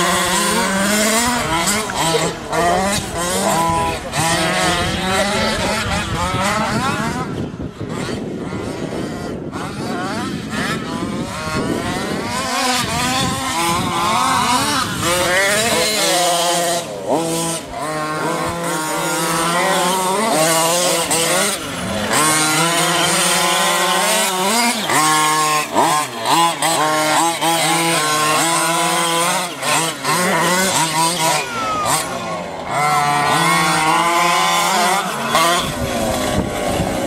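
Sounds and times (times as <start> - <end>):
small two-stroke engines revving: 0.0 - 37.0.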